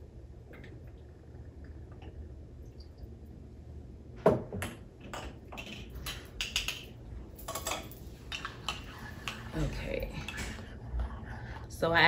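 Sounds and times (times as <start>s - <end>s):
spoon clinking in cup: 5.6s - 9.4s.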